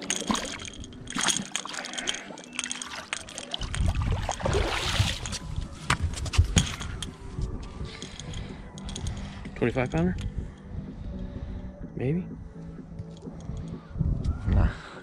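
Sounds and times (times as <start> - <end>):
fish splashing in water: 0.0 - 5.5.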